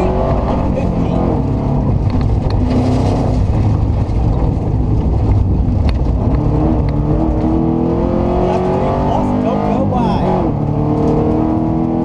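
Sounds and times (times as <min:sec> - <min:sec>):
road and tyre noise on gravel: 0:00.0 - 0:07.6
rally car engine: 0:00.0 - 0:12.0.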